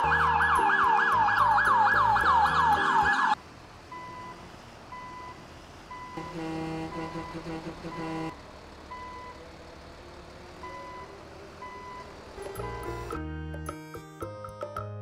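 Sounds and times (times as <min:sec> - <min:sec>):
electronic police siren yelp: 0:00.0 - 0:03.4
truck reversing alarm beeps: 0:00.0 - 0:09.6, 0:10.6 - 0:13.2.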